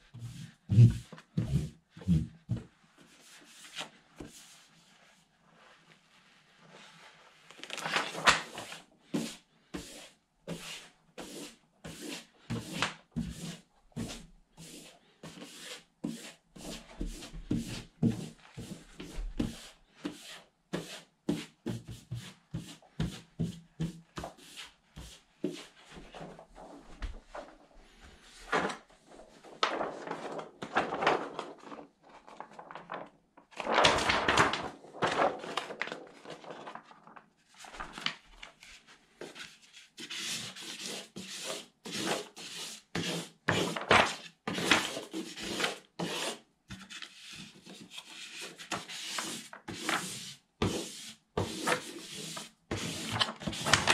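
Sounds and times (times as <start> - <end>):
plastic squeegee rubbing sheet: 0.2 - 2.3
paper rustling: 0.4 - 9.4, 23.0 - 40.1, 43.5 - 45.8, 51.4 - 53.9.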